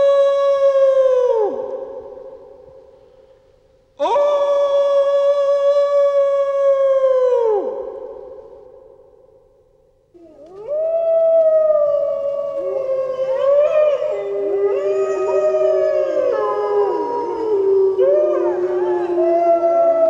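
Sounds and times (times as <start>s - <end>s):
wolves howling in chorus: 10.5s - 20.0s.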